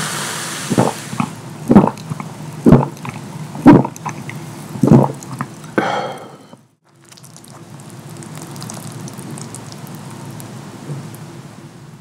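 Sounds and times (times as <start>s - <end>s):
man gulping a drink: 0.7s - 7.6s
breathy exhale: 5.8s - 6.6s.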